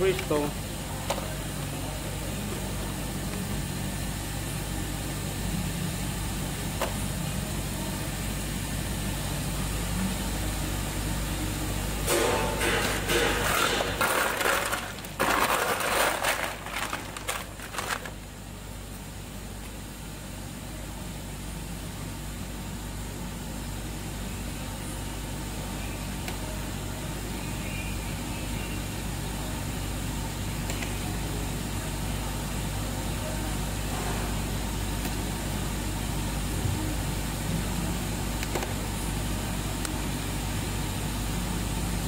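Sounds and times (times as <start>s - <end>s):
ice machine humming: 0.0s - 19.5s
harsh irregular noise: 12.2s - 18.3s.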